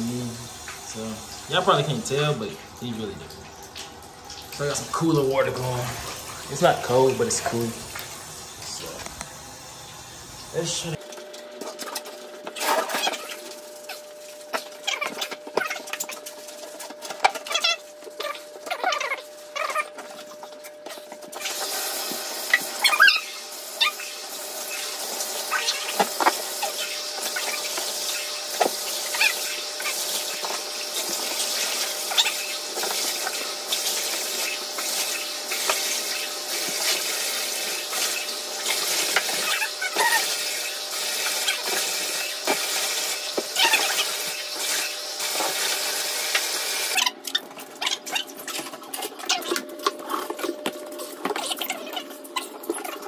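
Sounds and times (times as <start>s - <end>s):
water running into bathtub: 0.0s - 53.0s.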